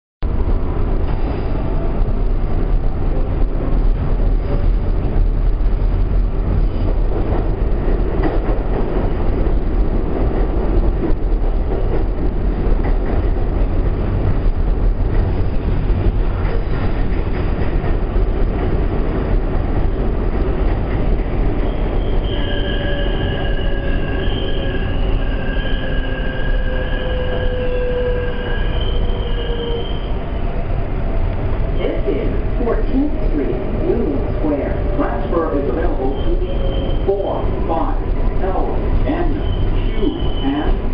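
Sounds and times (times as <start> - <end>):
subway train rumbling: 0.2 - 40.9
train whine: 0.2 - 40.9
wheels squealing: 21.6 - 30.2, 36.0 - 37.1.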